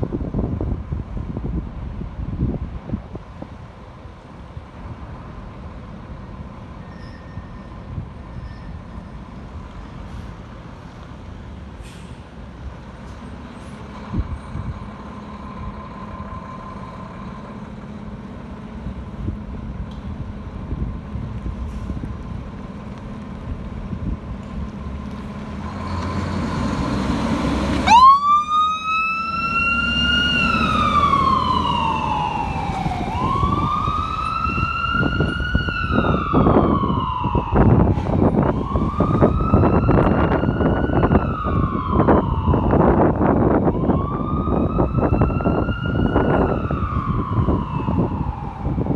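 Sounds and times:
fire engine running: 0:00.0 - 0:48.9
siren wailing: 0:27.8 - 0:48.9.

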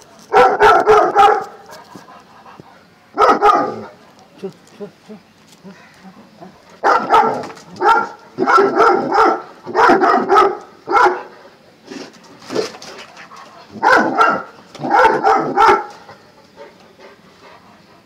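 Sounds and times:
dog barking: 0:00.3 - 0:01.6, 0:03.2 - 0:04.0, 0:06.8 - 0:11.3, 0:13.7 - 0:16.0.

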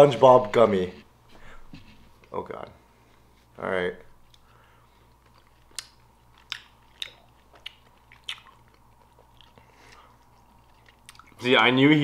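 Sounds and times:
person chewing candy: 0:04.3 - 0:11.4
mouth clicks and smacks: 0:05.1 - 0:11.4.

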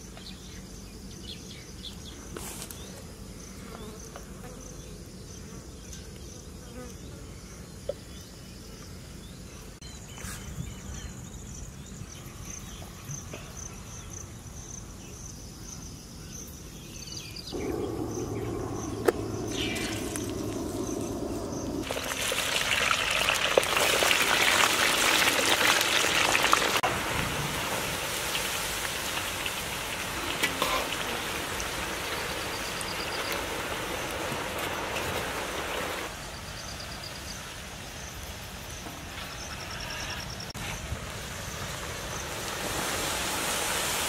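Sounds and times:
insects chirping: 0:00.0 - 0:44.0
low rushing noise: 0:17.5 - 0:23.2.

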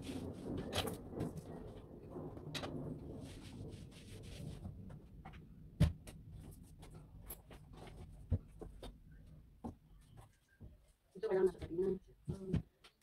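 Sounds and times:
household objects knocking and clicking: 0:04.7 - 0:09.0.

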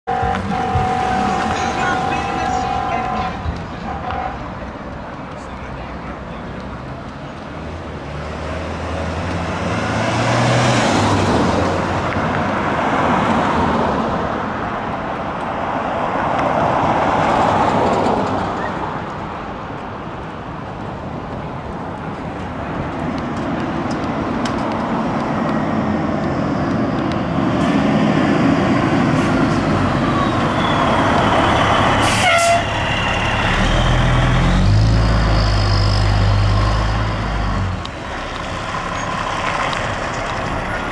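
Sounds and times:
fire engine siren: 0:00.1 - 0:04.5, 0:29.2 - 0:34.3
fire engine rumble: 0:00.1 - 0:09.1, 0:14.1 - 0:40.9
cars passing: 0:00.1 - 0:40.9.

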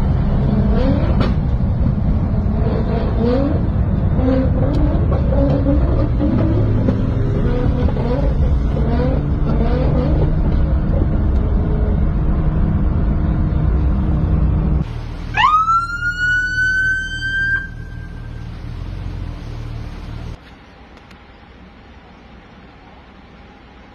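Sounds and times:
low steady engine hum: 0:00.0 - 0:23.9
sports car engine revving: 0:02.2 - 0:12.0
police siren wailing: 0:15.3 - 0:18.4.

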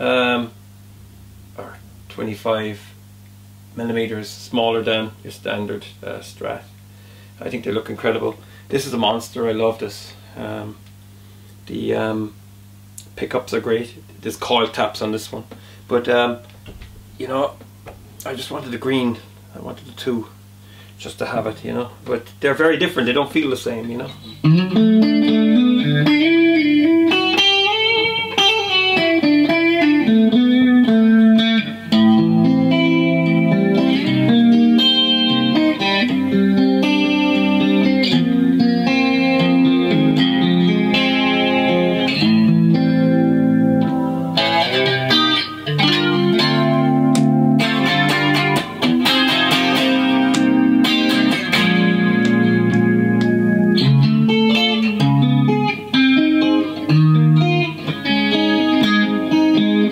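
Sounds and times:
electric guitar through amplifier: 0:23.7 - 0:59.9.

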